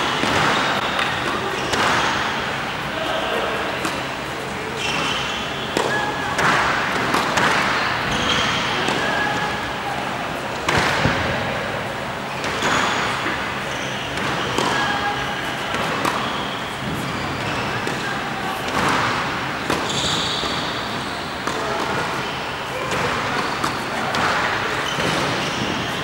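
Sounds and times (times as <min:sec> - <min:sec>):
tennis ball bouncing: 0:00.1 - 0:02.2, 0:04.9 - 0:09.0, 0:14.1 - 0:17.2, 0:17.8 - 0:20.7
racquet hitting tennis ball: 0:00.1 - 0:09.8, 0:10.6 - 0:26.0.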